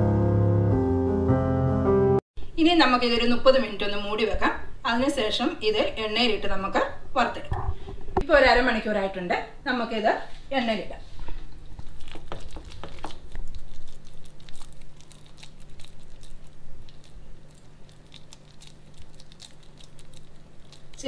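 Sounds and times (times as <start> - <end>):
hand squishing dough: 11.6 - 21.0
small clicks and crackles: 11.8 - 21.0.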